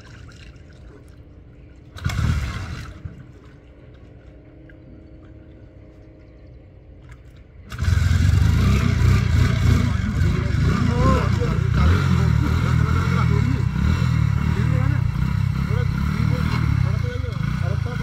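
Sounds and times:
motorcycle engine starting and running: 2.0 - 3.2, 7.6 - 18.0.

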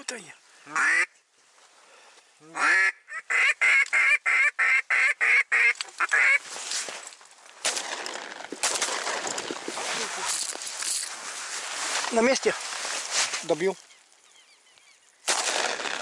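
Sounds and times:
rustling and shuffling: 5.8 - 13.9.

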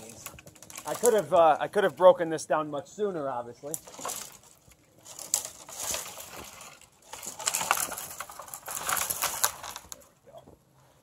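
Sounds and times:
snowy branches crunching and rustling: 0.0 - 2.2, 3.7 - 10.1.

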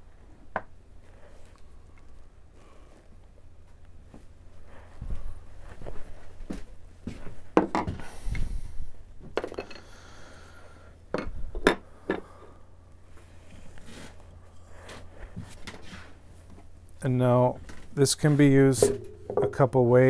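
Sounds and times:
tools knocking on workbench: 7.6 - 8.0, 18.8 - 19.6.

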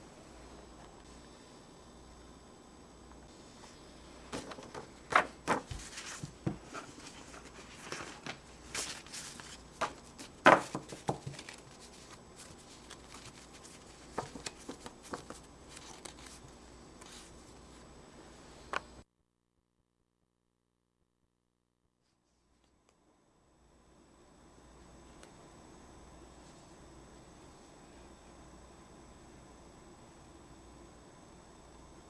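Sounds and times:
paper rustling: 4.3 - 17.6.

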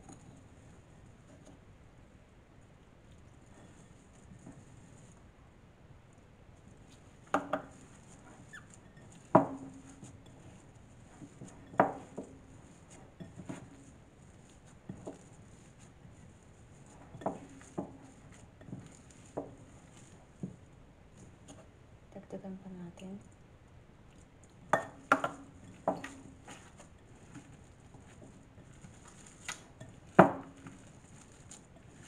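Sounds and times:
hands kneading dough: 0.0 - 32.0
glass bowl knocking: 24.7 - 26.2.

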